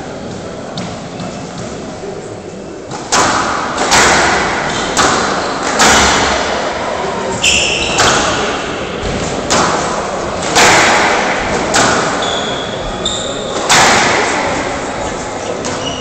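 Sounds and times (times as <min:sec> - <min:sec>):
squash ball cracking off rackets: 0:09.2 - 0:12.4.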